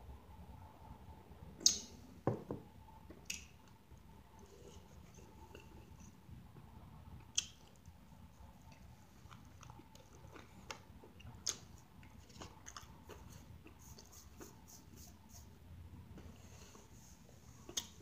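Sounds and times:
person chewing with mouth sounds: 8.6 - 14.8.

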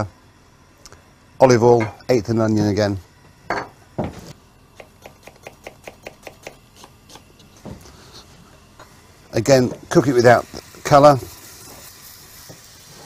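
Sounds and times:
knife chopping onion on board: 4.8 - 7.4.

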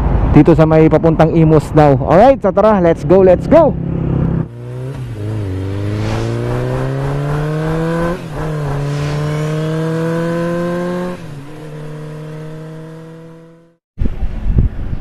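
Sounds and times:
motorcycle engine accelerating: 3.8 - 13.8.

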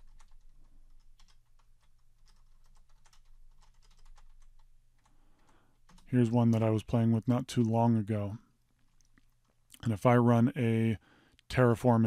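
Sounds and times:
typing on a keyboard: 0.0 - 6.7.

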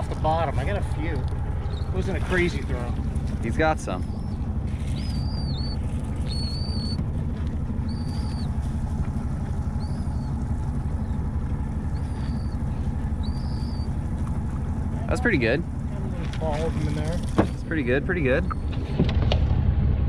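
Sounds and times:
low rumble: 0.0 - 20.0
bird whistling call: 4.0 - 7.0, 7.8 - 8.6, 9.7 - 10.4, 11.0 - 14.0.

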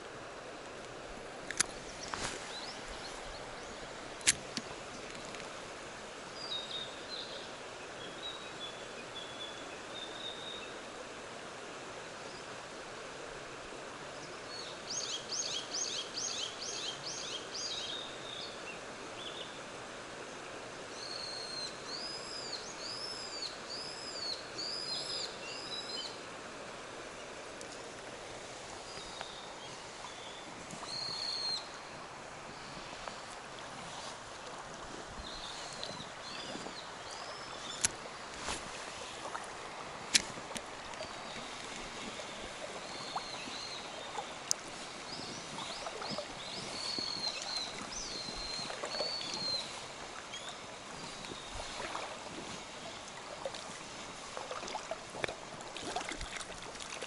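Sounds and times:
mountain stream rushing: 0.0 - 57.0
birds singing: 28.9 - 31.7, 45.1 - 51.8.

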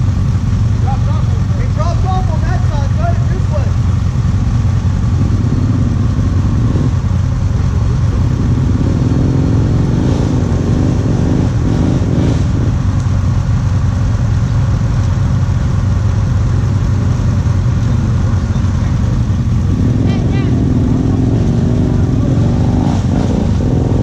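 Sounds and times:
engine idling: 0.0 - 24.0
engine revving: 4.6 - 13.1, 16.9 - 24.0.

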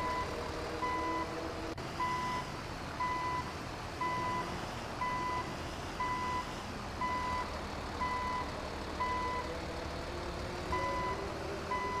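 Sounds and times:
reversing alarm beeping: 0.0 - 1.3, 2.0 - 3.4, 5.0 - 9.5, 10.7 - 12.0
low engine rumble: 0.0 - 12.0.

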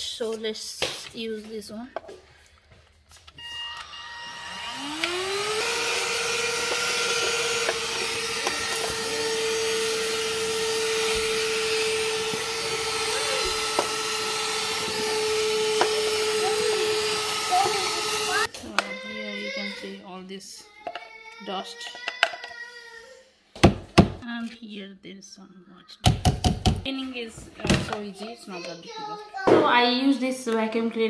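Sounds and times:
handheld vacuum motor whine: 3.3 - 18.5.

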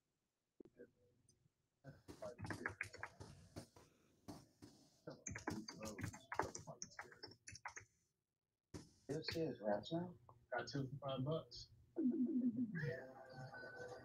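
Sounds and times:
keyboard typing: 2.1 - 3.8, 5.1 - 7.9.

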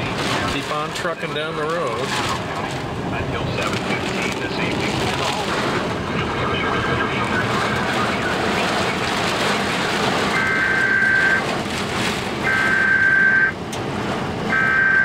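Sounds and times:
storm wind around vehicle: 0.0 - 15.0
high electronic beeps: 10.3 - 11.4, 12.4 - 13.6, 14.5 - 15.0.

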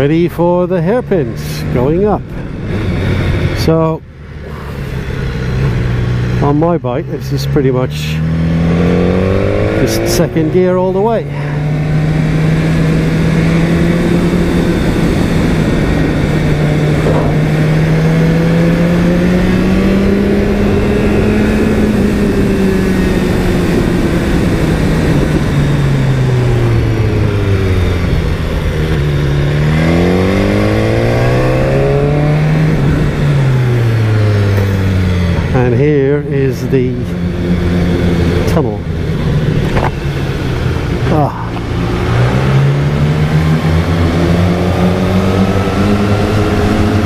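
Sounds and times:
motorcycle engine accelerating: 0.0 - 47.0
wind noise: 11.4 - 35.6.

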